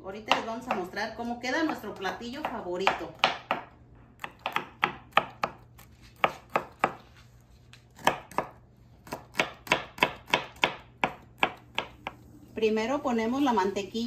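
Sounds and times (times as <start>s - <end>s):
knife mincing on plastic cutting board: 4.2s - 12.2s.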